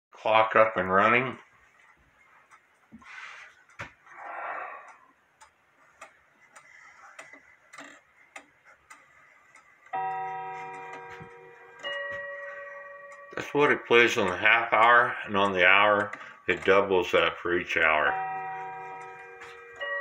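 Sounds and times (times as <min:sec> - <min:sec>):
wall clock ticking: 0:00.2 - 0:20.0
two-tone clock chime: 0:09.9 - 0:20.0.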